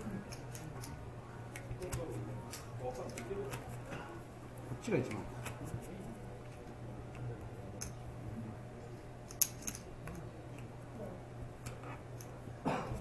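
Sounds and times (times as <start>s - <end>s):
room hum: 0.0s - 13.0s
cards and poker chips clicking: 9.3s - 10.3s.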